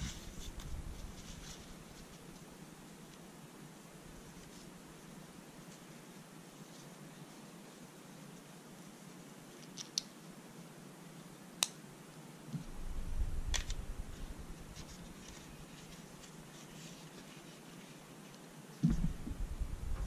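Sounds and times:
low rumble: 12.6s - 15.0s, 18.8s - 20.0s
sunglasses handling sounds: 13.5s - 17.3s.

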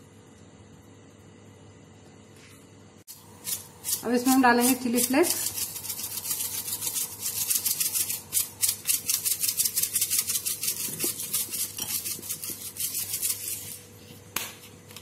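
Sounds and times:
flakes rattling in plastic shaker: 3.9s - 13.8s.

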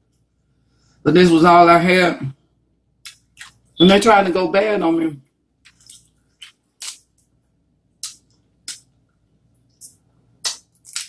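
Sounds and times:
wet mouth smacks: 3.0s - 3.6s, 5.6s - 7.0s, 8.0s - 8.9s, 9.8s - 11.0s.

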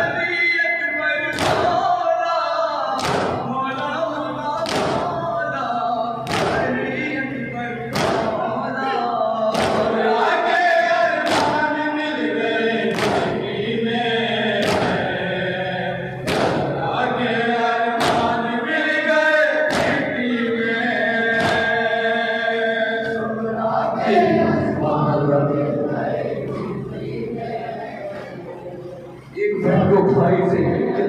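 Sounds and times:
men chanting in unison: 0.0s - 31.0s
chest-beating slaps: 1.3s - 1.7s, 3.0s - 3.5s, 4.6s - 5.1s, 6.2s - 6.8s, 7.9s - 8.4s, 9.5s - 10.0s, 11.2s - 11.6s, 12.9s - 13.4s, 14.6s - 15.0s, 16.2s - 16.8s, 18.0s - 18.4s, 19.7s - 20.2s, 21.3s - 21.8s.

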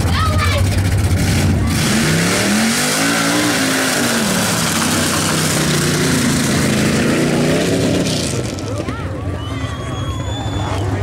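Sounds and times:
engine revving hard: 1.1s - 8.7s.

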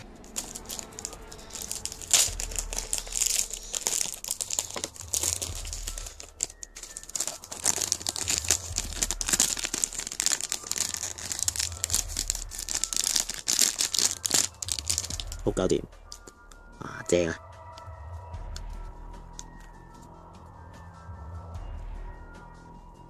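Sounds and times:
plastic wrap crinkling: 0.0s - 15.5s.

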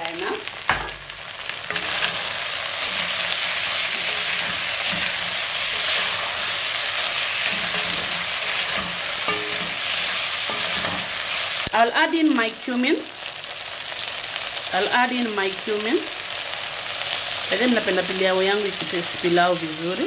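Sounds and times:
meat and onions sizzling: 0.0s - 20.0s
wooden spoon stirring: 1.6s - 11.6s.

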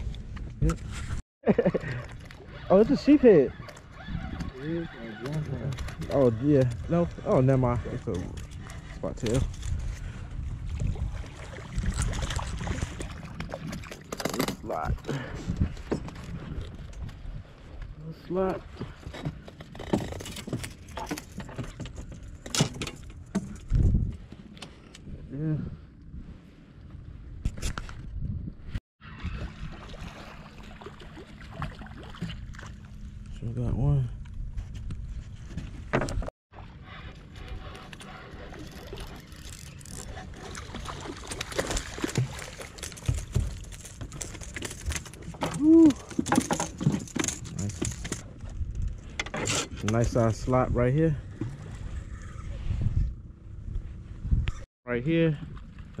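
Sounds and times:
fishing tackle clicks and rattles: 41.3s - 50.1s
person exclaiming: 45.6s - 46.1s.

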